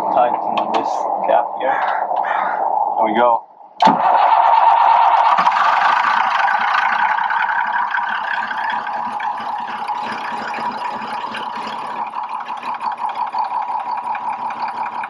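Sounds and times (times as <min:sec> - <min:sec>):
diesel engine idling: 0:03.9 - 0:15.0.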